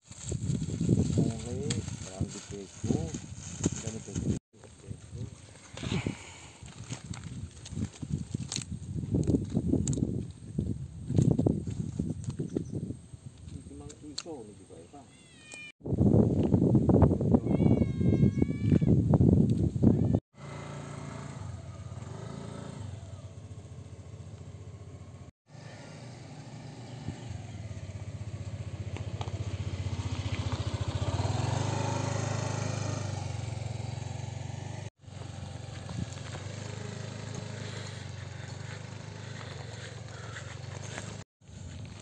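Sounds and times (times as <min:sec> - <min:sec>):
small motorcycle engine running: 0:20.4 - 0:42.0.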